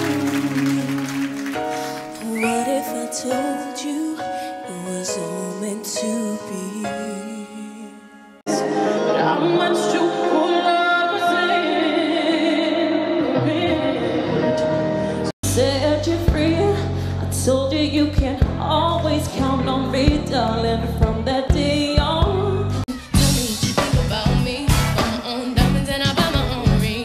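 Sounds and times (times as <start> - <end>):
live band accompaniment: 0.0 - 3.6, 8.5 - 17.4, 18.2 - 27.0
woman singing pop vocals: 0.0 - 27.0
heavy bass: 15.4 - 27.0.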